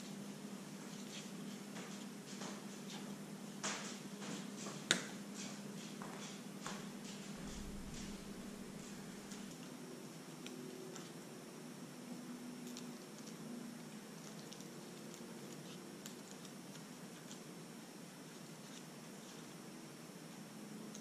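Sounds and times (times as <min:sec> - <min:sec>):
room hiss: 0:00.0 - 0:21.0
pointed tool ticking and scratching: 0:14.0 - 0:17.5.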